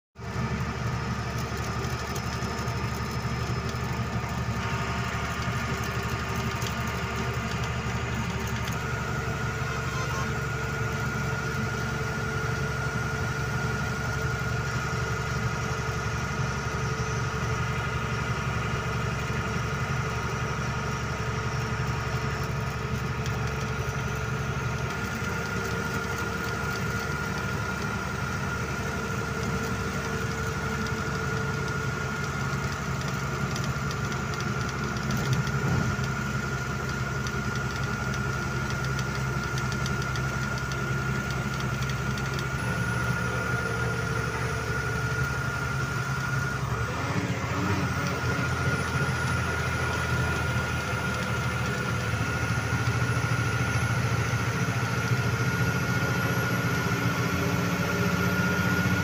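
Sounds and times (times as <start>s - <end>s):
truck engine running: 0.2s - 59.0s
thin high whine: 9.4s - 10.6s.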